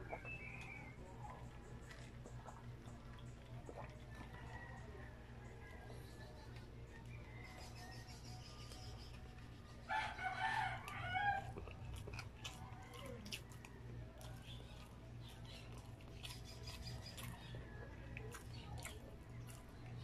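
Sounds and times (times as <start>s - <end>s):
eating sounds: 0.0s - 20.0s
steady low hum: 0.0s - 20.0s
rooster crowing: 6.9s - 8.1s, 9.9s - 11.6s.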